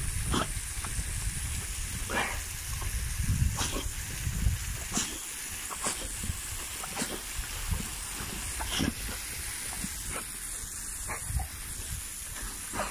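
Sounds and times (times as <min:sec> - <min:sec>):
hose nozzle spray hissing: 0:00.0 - 0:12.9.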